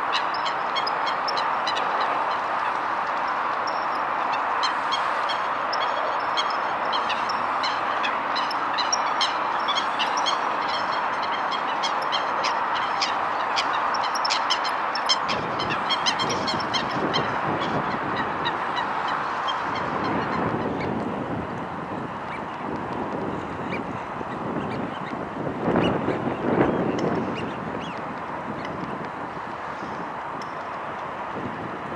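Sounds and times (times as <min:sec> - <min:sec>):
geese honking: 0:00.1 - 0:20.4.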